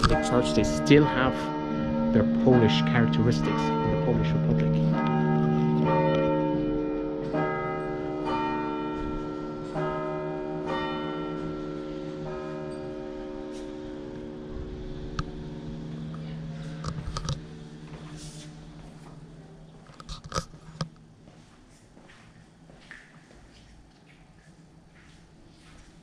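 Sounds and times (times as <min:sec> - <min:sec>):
church bells ringing: 0:00.0 - 0:20.1.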